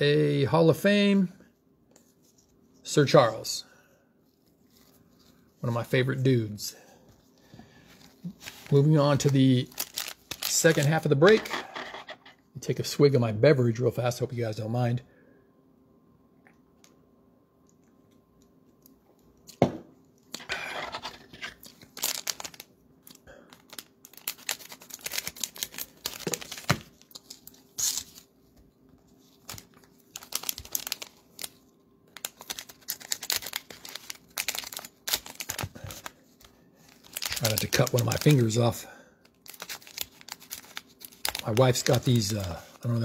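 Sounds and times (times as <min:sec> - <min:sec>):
cellophane wrappers crinkling and tearing: 0:07.9 - 0:11.1, 0:20.3 - 0:28.3, 0:29.1 - 0:43.0.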